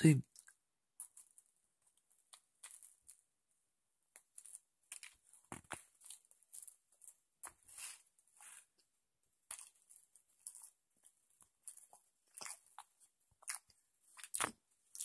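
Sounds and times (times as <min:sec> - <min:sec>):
person chewing with crunching: 0:02.2 - 0:03.2, 0:04.2 - 0:08.8, 0:09.4 - 0:15.0.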